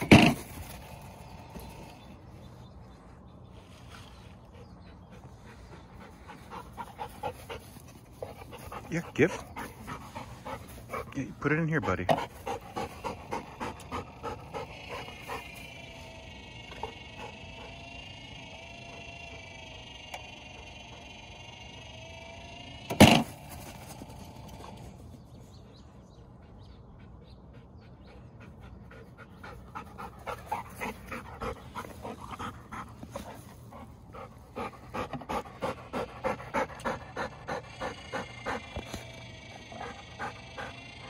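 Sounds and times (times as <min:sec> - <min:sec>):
dog panting: 0:04.2 - 0:18.0, 0:23.5 - 0:41.0
ball launcher firing crack: 0:22.9 - 0:23.4.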